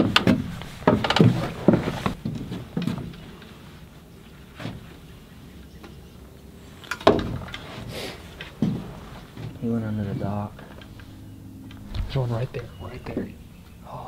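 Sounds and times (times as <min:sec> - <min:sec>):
footsteps on wooden stairs: 0:00.0 - 0:03.3, 0:08.4 - 0:09.6.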